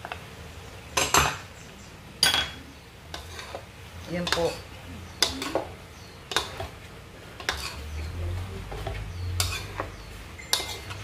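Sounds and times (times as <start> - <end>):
spatula scraping metal wok: 3.1 - 5.7, 6.3 - 11.0.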